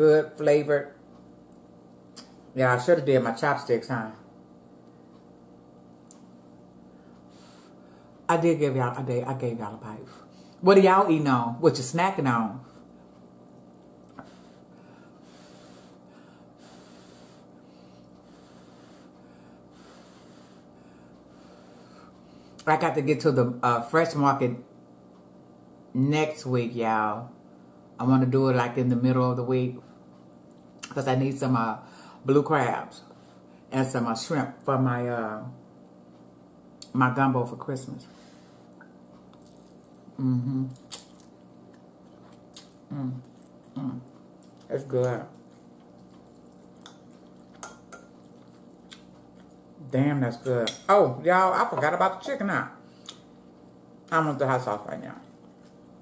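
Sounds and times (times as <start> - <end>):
breathing through the nose: 14.2 - 20.7
closed-mouth hum: 33.0 - 56.0
chewing noodles: 39.2 - 40.1, 40.7 - 44.7, 45.3 - 49.6.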